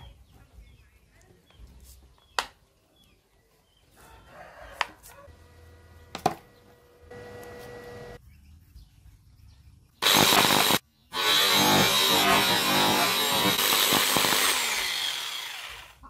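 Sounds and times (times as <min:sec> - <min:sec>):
angle grinder motor running: 0:05.4 - 0:08.2, 0:10.0 - 0:16.0.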